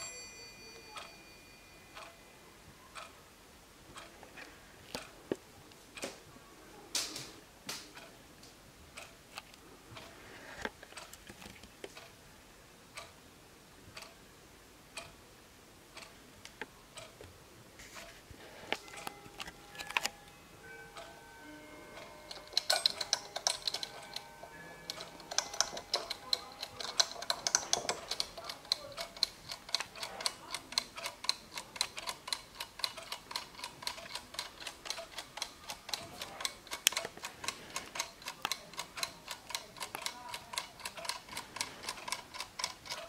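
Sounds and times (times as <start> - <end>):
wall clock ticking: 0.0 - 2.2, 2.8 - 5.4, 6.0 - 6.2, 7.0 - 11.3, 11.9 - 12.3, 12.9 - 13.3, 13.9 - 17.4, 18.0 - 43.0
faint ringing tones: 0.0 - 3.5, 18.4 - 29.2
timer dial rapid clicks: 22.0 - 43.0.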